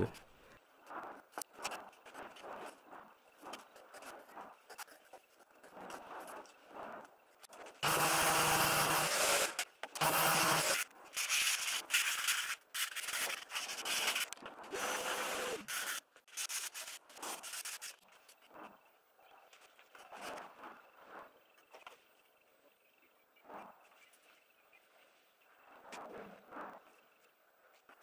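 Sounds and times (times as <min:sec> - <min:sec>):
sandpaper rubbing wood: 0:07.8 - 0:18.0.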